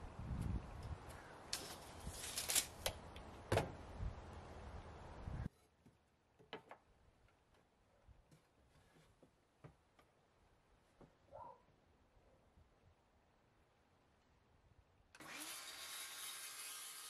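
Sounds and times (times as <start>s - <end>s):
wind rumbling on microphone: 0.0s - 2.3s, 3.8s - 5.5s
tape measure and boards clicking: 1.5s - 3.0s.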